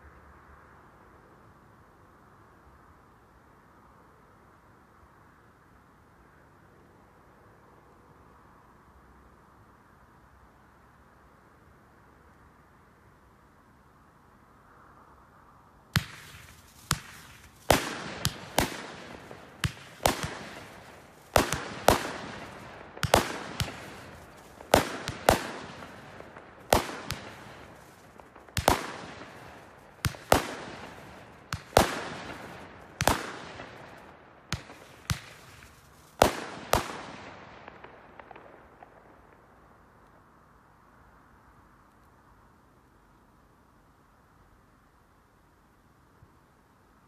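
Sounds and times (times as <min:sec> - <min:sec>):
fireworks exploding: 0:16.0 - 0:39.7.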